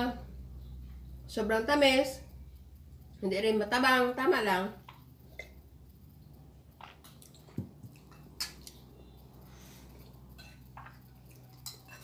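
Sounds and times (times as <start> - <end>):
soft eating sounds: 4.7 - 12.0
spoons clinking on bowls: 10.3 - 12.0.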